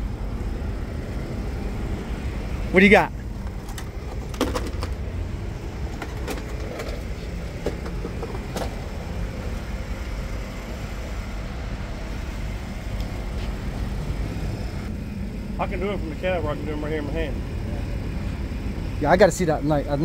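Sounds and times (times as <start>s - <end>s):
low vehicle rumble: 0.0s - 20.0s
sharp clicks and knocks: 3.4s - 5.2s, 5.8s - 8.8s.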